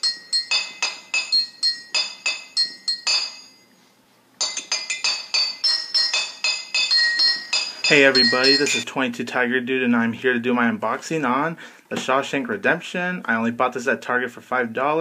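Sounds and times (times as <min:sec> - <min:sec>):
glassy bell-like music: 0:00.0 - 0:08.8.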